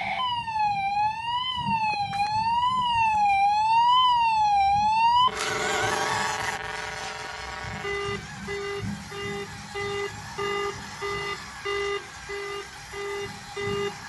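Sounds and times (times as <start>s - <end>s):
toy car electronic siren: 0.0s - 14.0s
noisy warbling sound: 5.2s - 14.0s.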